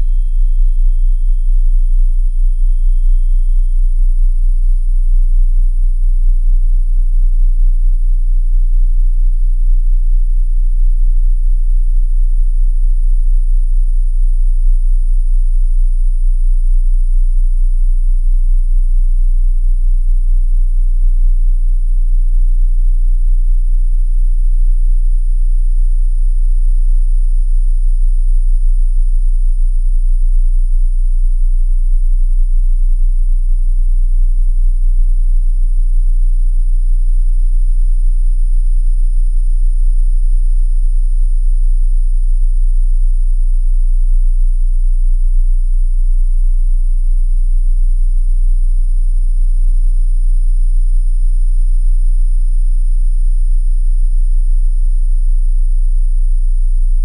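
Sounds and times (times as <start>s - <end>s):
faint high-pitched whines: 0.0s - 41.4s.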